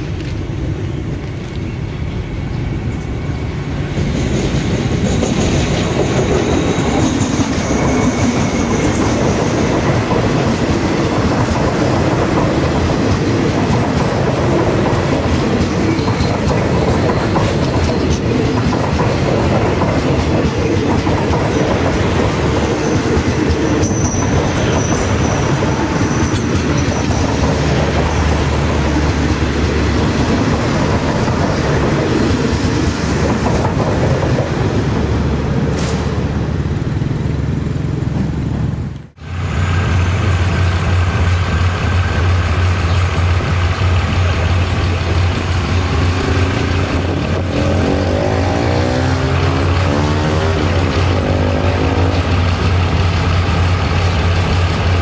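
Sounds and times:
train wheels clattering over joints: 0:04.0 - 0:34.8
high wheel squeal: 0:05.4 - 0:10.1, 0:22.3 - 0:29.9.

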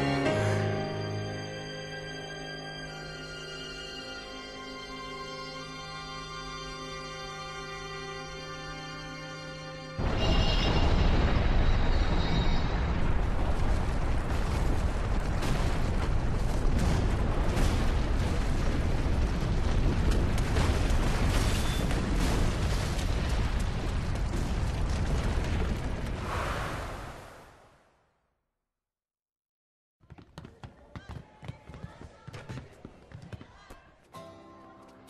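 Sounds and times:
soft music: 0:00.0 - 0:10.0, 0:34.2 - 0:35.0
explosion rumbling blast: 0:10.0 - 0:27.6.

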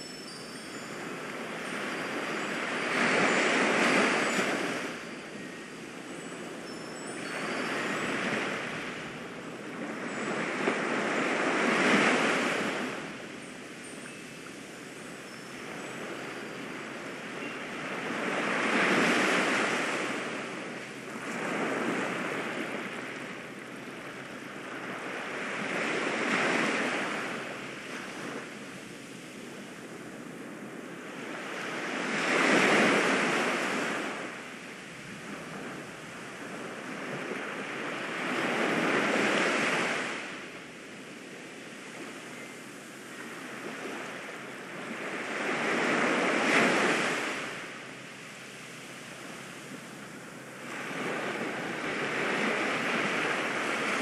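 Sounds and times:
ocean waves washing in: 0:14.7 - 0:54.0.

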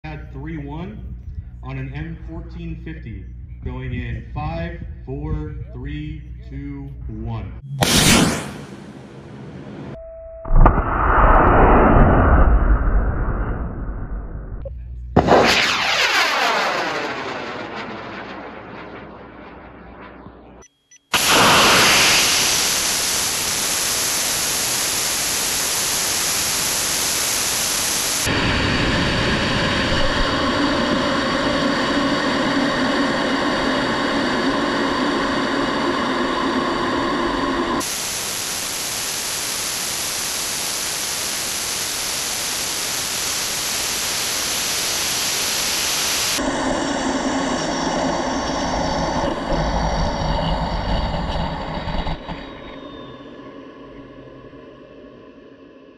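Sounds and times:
rushing air hiss: 0:21.2 - 0:52.0
steady whistling tones: 0:46.4 - 0:54.8.

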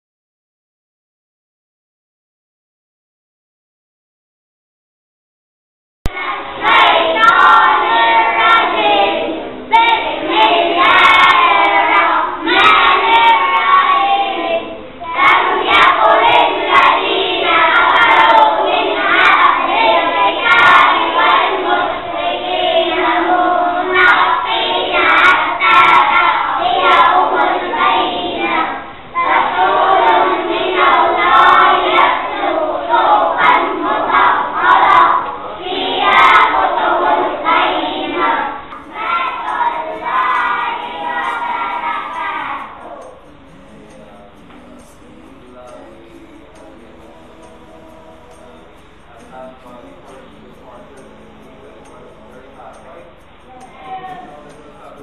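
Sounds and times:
boys singing in unison: 0:06.1 - 0:55.0.

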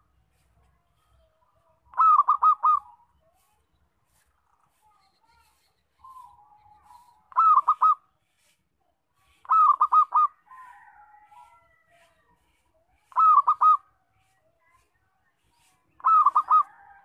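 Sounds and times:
dove cooing: 0:01.9 - 0:03.4, 0:06.0 - 0:08.0, 0:09.4 - 0:11.6, 0:13.1 - 0:13.9, 0:16.0 - 0:17.0.

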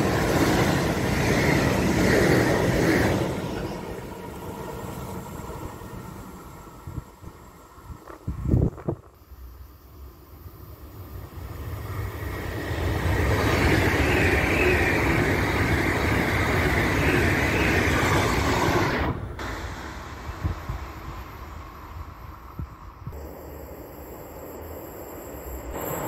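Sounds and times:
electric train passing: 0:00.0 - 0:26.0.

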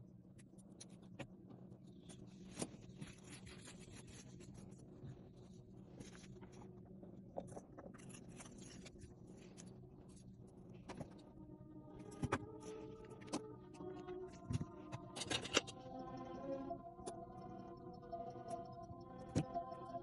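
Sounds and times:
low steady hum: 0:00.0 - 0:20.0
pliers and metal findings clicking: 0:15.2 - 0:15.8.

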